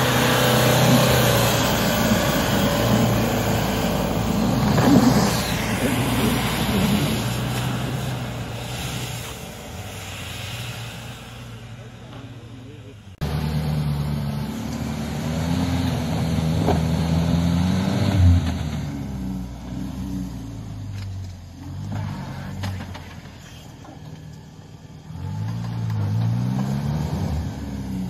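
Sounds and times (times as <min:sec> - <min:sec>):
tyres spinning in snow: 0:00.0 - 0:12.4
engine revving hard: 0:25.1 - 0:28.0.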